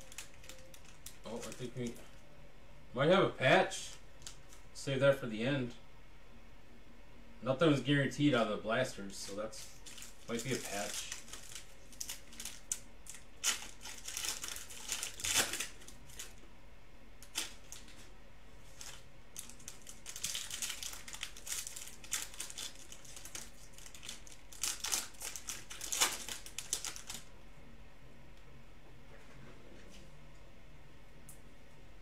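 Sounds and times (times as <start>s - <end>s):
foil cards crinkling and rustling: 0.0s - 2.2s, 9.2s - 16.4s, 17.2s - 27.3s.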